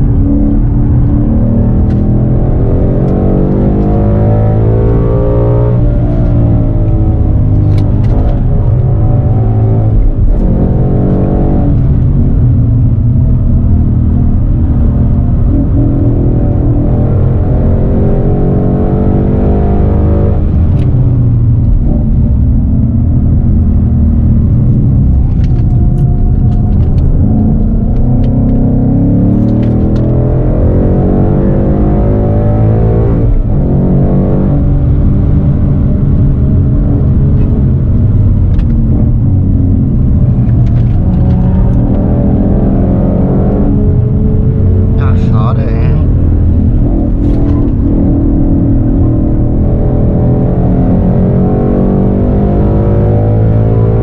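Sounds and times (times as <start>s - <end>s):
car engine under hard driving: 0.0s - 54.0s.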